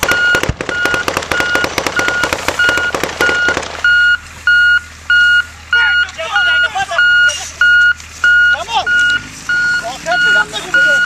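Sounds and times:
rapid automatic gunfire: 0.0 - 3.8
truck reverse alarm beeping: 0.0 - 11.0.

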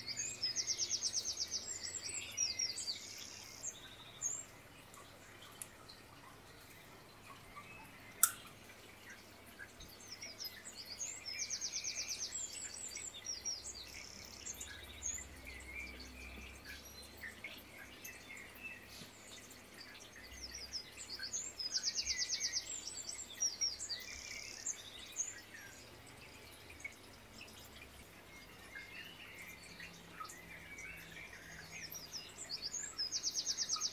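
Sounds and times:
birdsong chirps and trill: 0.0 - 33.9
sharp click: 8.2 - 8.4.

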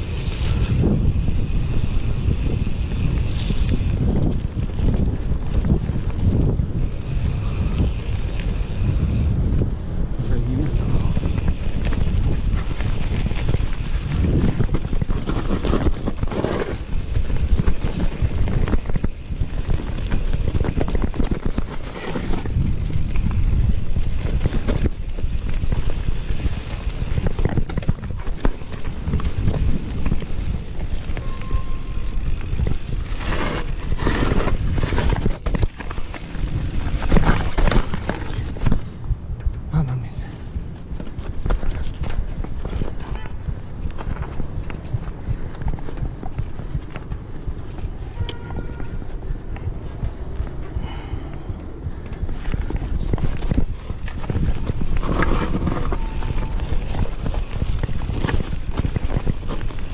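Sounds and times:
bike frame and chain rattling: 0.0 - 39.0, 40.6 - 51.1, 52.0 - 59.9.

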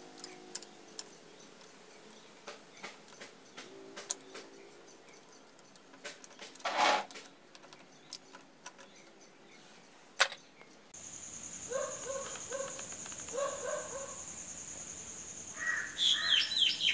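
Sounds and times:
metal tool clicks and clinks: 0.1 - 1.2
metal scrape: 6.0 - 7.3.

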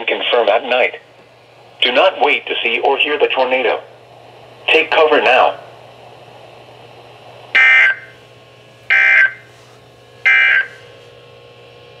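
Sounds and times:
digital data tone bursts: 7.6 - 8.1, 8.9 - 9.4, 10.3 - 10.7.

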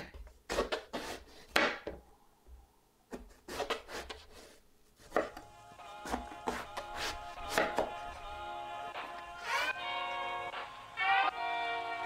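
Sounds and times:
knife cutting onto cutting board: 3.1 - 5.4, 6.0 - 7.9.

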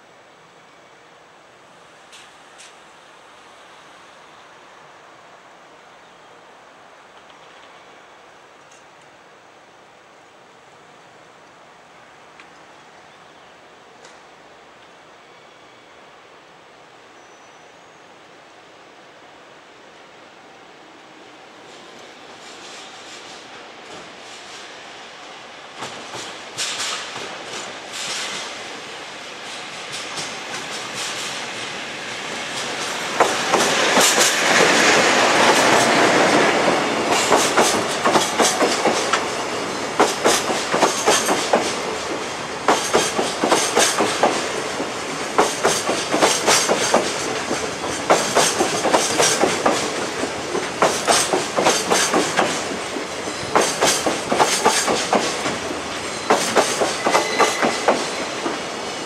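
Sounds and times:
train wheels clicking over rail joints: 25.7 - 28.7, 29.4 - 59.0
locomotive rushing past: 25.7 - 59.0.

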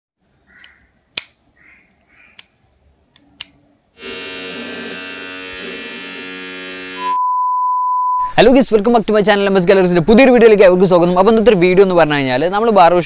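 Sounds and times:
sharp clicks: 0.6 - 1.4
hair trimmer motor buzzing: 4.0 - 7.2.

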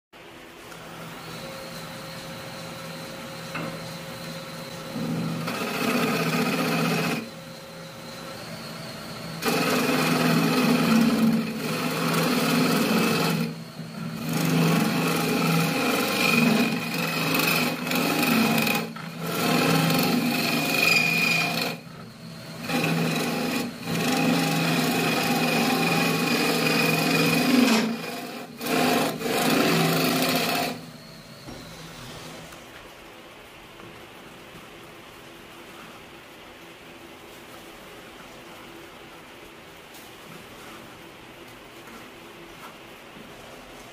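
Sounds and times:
lathe humming: 0.7 - 32.6
tool scraping wood on lathe: 1.2 - 32.6.

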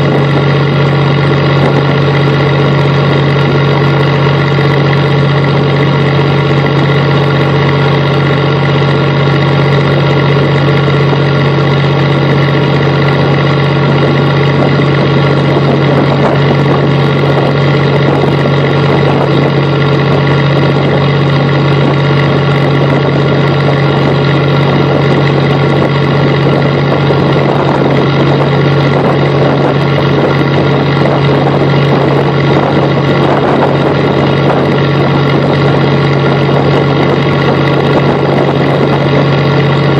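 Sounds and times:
boat engine humming: 0.0 - 39.9.

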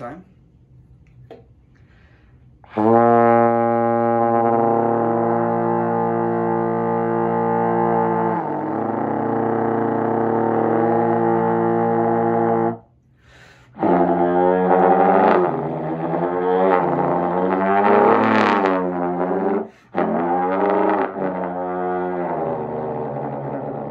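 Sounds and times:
trombone with sung buzzing chord: 2.7 - 12.8, 13.8 - 23.9.

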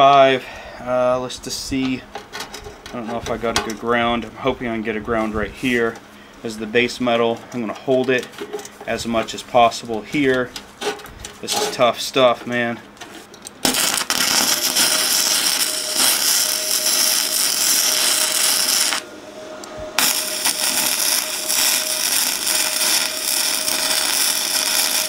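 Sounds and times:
faint steady whine: 0.0 - 25.0
welding arc crackling: 13.5 - 19.1, 20.0 - 25.0.

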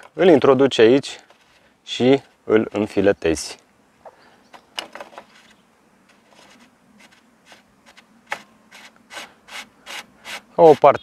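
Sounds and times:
threads rubbing: 4.1 - 11.0.

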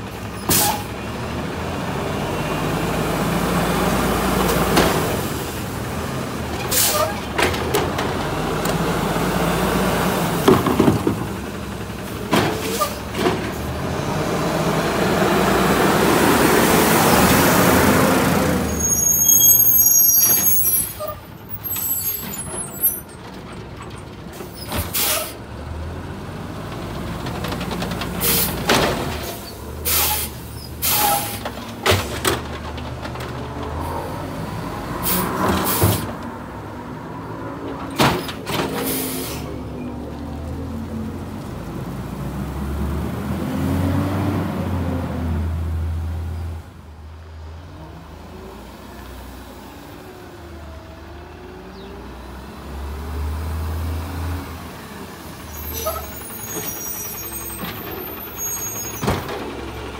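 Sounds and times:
brakes squealing: 0.0 - 1.2, 2.0 - 16.0, 16.7 - 25.8, 27.4 - 36.2, 37.4 - 40.7, 53.4 - 59.9
garbage truck engine: 0.0 - 59.9
hydraulic arm dumping cart: 0.1 - 1.1, 3.5 - 15.8, 16.4 - 25.5, 26.7 - 36.4, 37.2 - 40.3, 55.3 - 59.9
air brake hisses: 24.8 - 25.4, 29.8 - 31.4, 38.8 - 39.6.

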